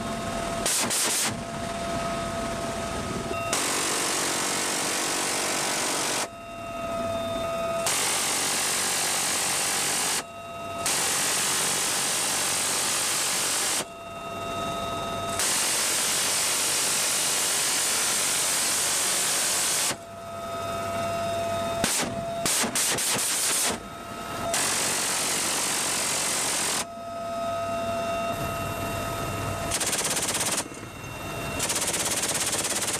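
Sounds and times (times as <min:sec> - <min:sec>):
helicopter turbine whine: 0:00.0 - 0:32.9
minigun firing buzzing bursts: 0:00.6 - 0:01.4, 0:03.5 - 0:06.3, 0:21.8 - 0:23.8, 0:29.7 - 0:30.8, 0:31.6 - 0:32.9.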